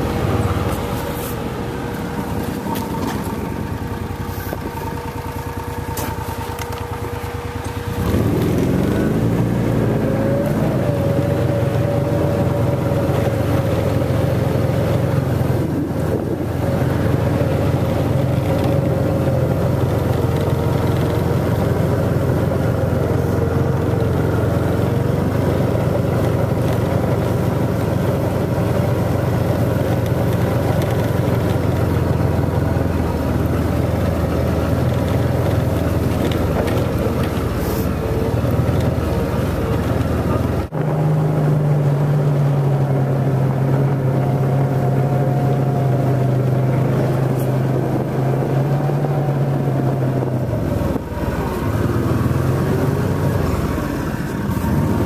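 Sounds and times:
utility vehicle engine running: 0.0s - 55.0s.

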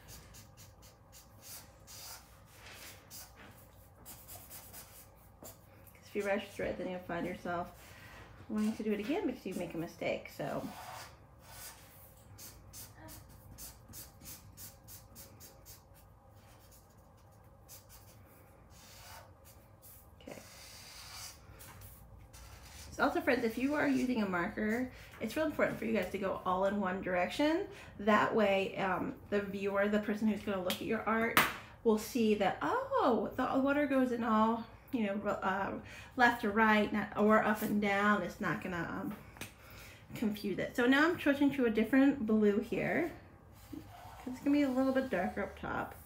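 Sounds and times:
marker scratching on paper: 0.0s - 6.6s, 8.6s - 24.8s, 43.6s - 46.0s.

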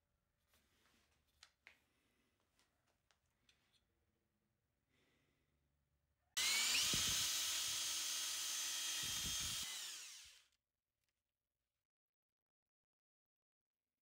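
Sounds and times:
electric drill with paddle mixer: 6.4s - 10.6s.

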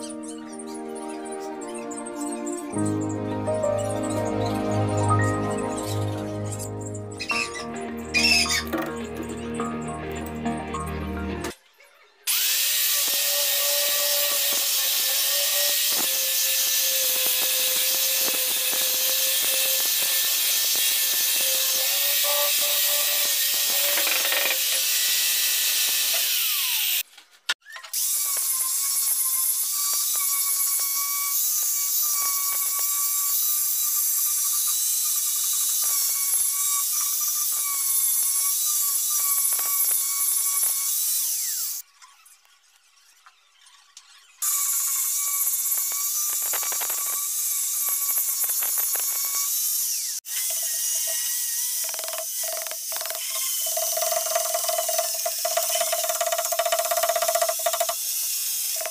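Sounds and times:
angle grinder whining: 0.0s - 58.9s
grinding wood hiss: 12.3s - 27.1s, 28.0s - 58.9s.

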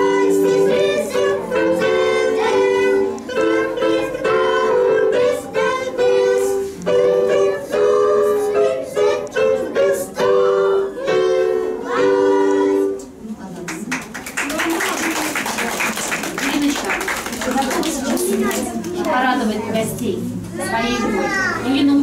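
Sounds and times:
young children singing: 0.0s - 13.2s.

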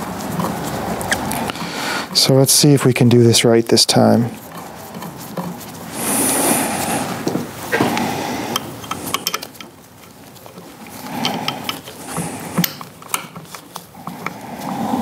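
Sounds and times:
small metal clicks and knocks: 8.5s - 14.4s.

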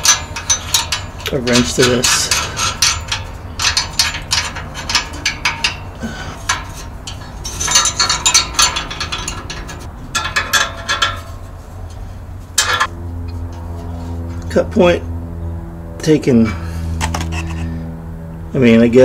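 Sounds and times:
ratchet wrench clicking: 0.0s - 11.3s.

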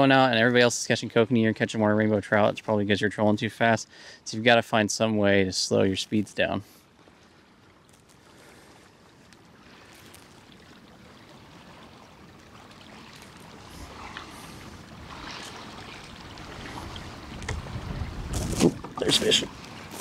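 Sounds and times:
water lapping against hull: 0.0s - 20.0s.

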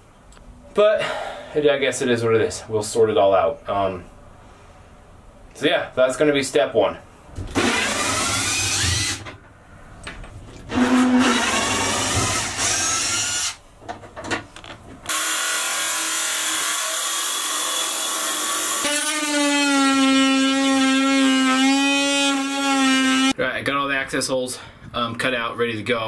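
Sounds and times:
power tool buzzing: 7.5s - 9.3s, 10.7s - 13.6s, 15.1s - 23.3s
cordless drill whirring: 7.6s - 9.2s, 10.7s - 13.6s.

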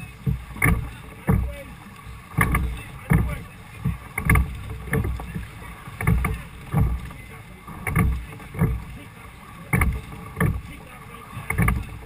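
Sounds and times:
oars knocking against thole pins: 0.0s - 12.0s
water noise: 0.0s - 12.0s
wind: 0.0s - 12.0s.

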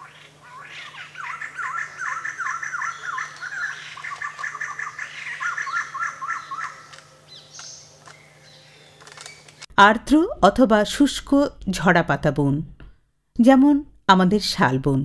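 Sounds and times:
birds chattering chorus: 0.0s - 9.6s.

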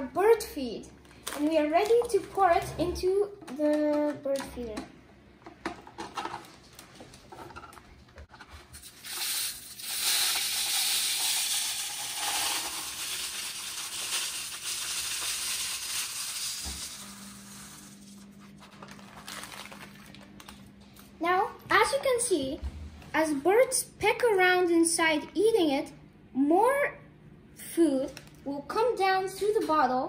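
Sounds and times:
seed pouring into feeder: 8.8s - 17.9s
plastic bag rustling: 18.1s - 20.7s.

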